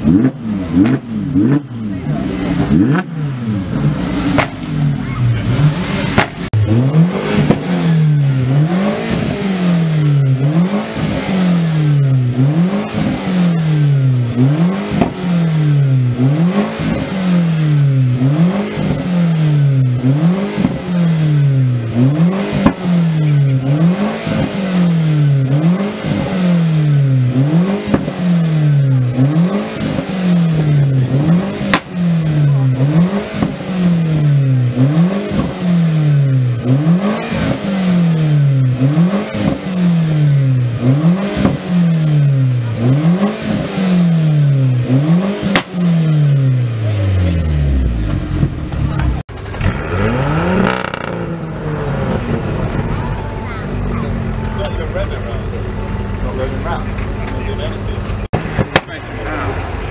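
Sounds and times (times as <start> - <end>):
car engine revving: 0.0 - 59.9
sharp crack: 4.3 - 4.8, 6.1 - 6.6, 31.6 - 32.0, 45.4 - 45.8, 58.3 - 59.5.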